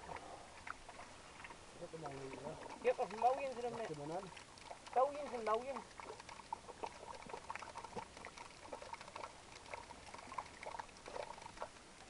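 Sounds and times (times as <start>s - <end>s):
water splashing and trickling: 0.0s - 12.0s.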